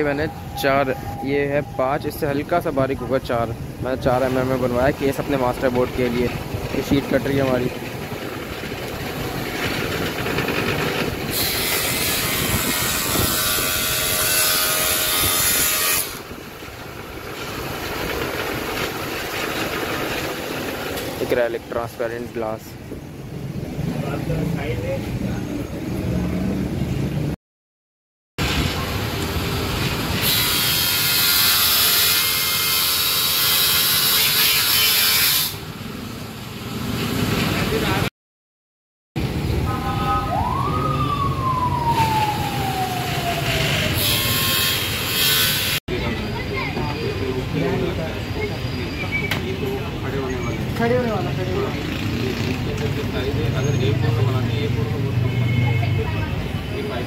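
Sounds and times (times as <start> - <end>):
saw blade cutting plastic sheet: 10.4 - 16.3, 30.2 - 35.6, 43.7 - 45.8.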